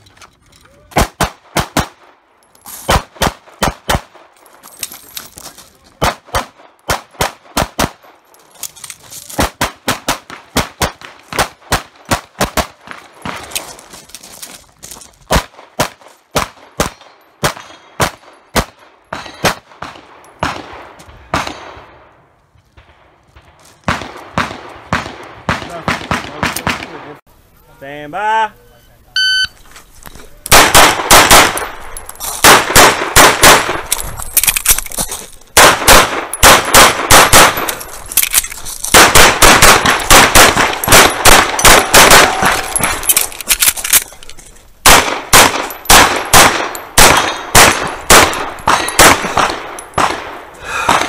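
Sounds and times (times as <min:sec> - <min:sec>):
pistol shots: 0:00.9 - 0:02.1, 0:02.9 - 0:04.3, 0:06.0 - 0:08.1, 0:15.3 - 0:22.0, 0:30.5 - 0:34.0, 0:35.6 - 0:37.8, 0:38.9 - 0:43.1, 0:44.8 - 0:51.0.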